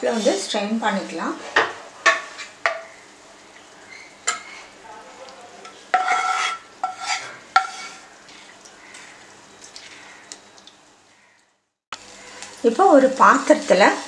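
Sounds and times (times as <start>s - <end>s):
metal pan scraping on strainer: 5.9s - 8.0s.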